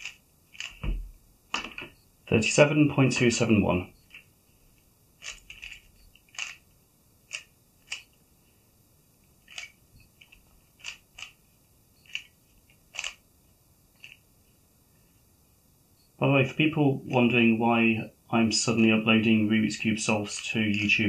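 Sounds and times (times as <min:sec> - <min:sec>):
puzzle cube plastic clicks: 0:00.0 - 0:00.8, 0:05.2 - 0:06.7, 0:07.3 - 0:08.2, 0:09.4 - 0:11.4, 0:12.0 - 0:13.2, 0:14.0 - 0:14.2.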